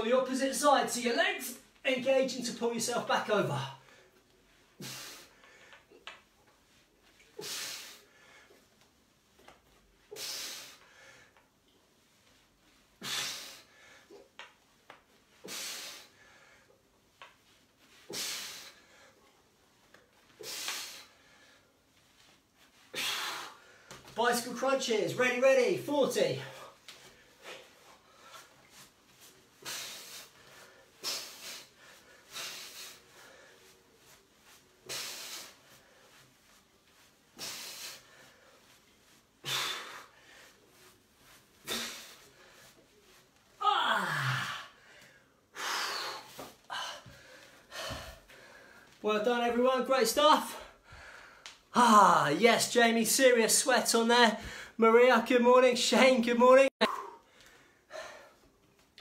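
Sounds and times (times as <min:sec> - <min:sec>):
man breathing out forcefully: 0:22.9 - 0:24.0, 0:37.4 - 0:38.6, 0:43.9 - 0:48.9.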